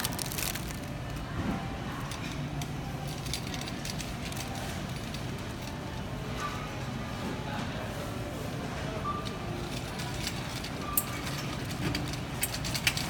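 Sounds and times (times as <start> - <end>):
cellophane crinkling: 0.0 - 1.1.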